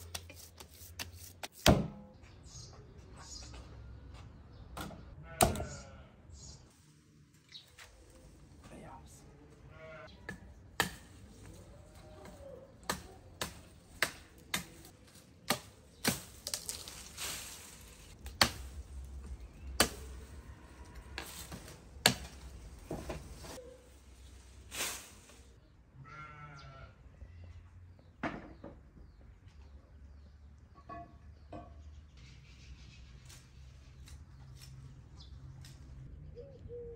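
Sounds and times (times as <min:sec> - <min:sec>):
animal bleat: 0:05.2 - 0:06.2, 0:09.7 - 0:10.2, 0:26.0 - 0:27.0
branches snapping: 0:12.2 - 0:23.3.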